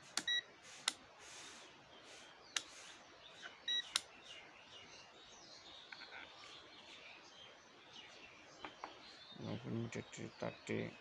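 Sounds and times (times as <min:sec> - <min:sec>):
multimeter high beep: 0:03.6 - 0:03.9.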